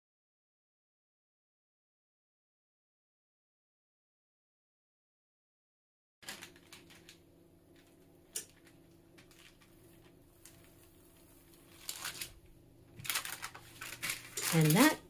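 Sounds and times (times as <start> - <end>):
low steady hum: 6.2 - 15.0
rustling and crinkling: 6.2 - 15.0.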